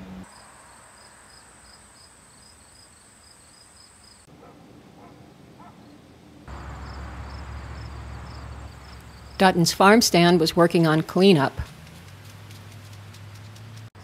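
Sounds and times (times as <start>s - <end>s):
insects chirping: 0.2s - 4.3s, 5.7s - 9.7s.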